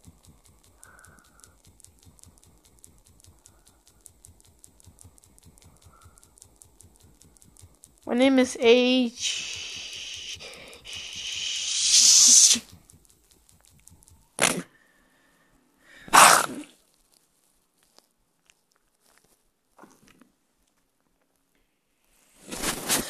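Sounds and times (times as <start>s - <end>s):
sharp breathy bursts: 0.6s - 4.1s, 5.6s - 6.5s, 9.1s - 12.8s, 14.4s - 16.7s.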